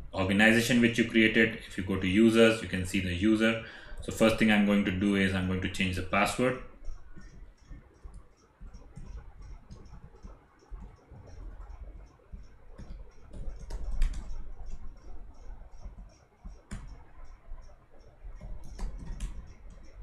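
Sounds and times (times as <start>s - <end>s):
typing on computer keyboard: 4.0s - 20.0s.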